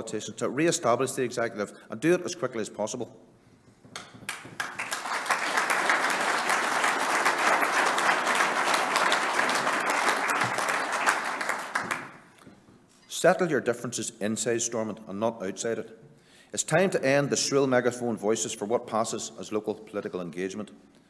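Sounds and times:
audience applauding: 0:04.2 - 0:12.3.

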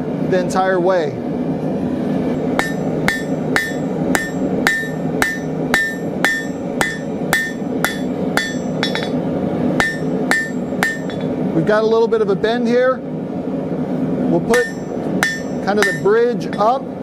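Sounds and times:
hammer striking steel on anvil: 0:02.6 - 0:09.2, 0:09.8 - 0:11.4, 0:14.5 - 0:16.8.

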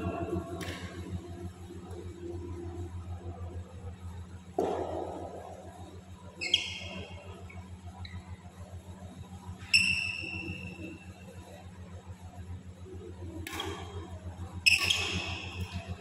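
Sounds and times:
steady low hum: 0:00.0 - 0:16.0
high ringing squeaks: 0:06.4 - 0:08.2, 0:09.7 - 0:11.0, 0:14.6 - 0:15.6.

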